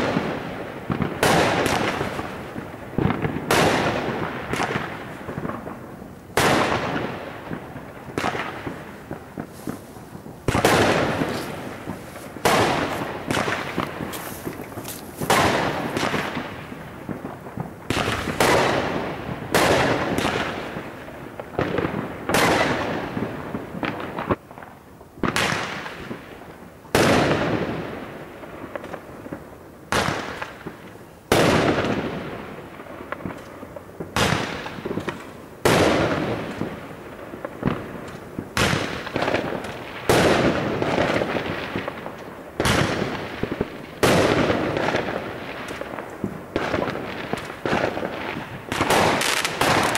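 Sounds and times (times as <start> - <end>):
fireworks shells bursting: 8.2 - 17.2, 46.8 - 49.9.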